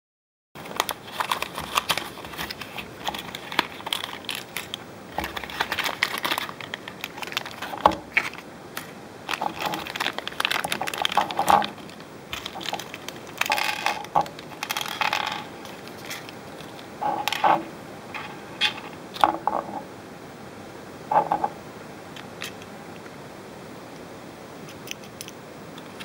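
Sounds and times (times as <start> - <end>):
plastic bags crinkling: 0.6 - 19.6.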